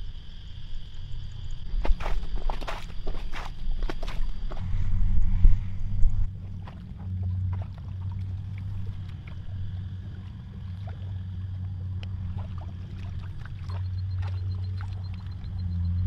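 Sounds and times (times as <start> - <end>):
muddy water splashing: 1.6 - 4.8, 6.2 - 16.0
low drone: 4.4 - 16.0.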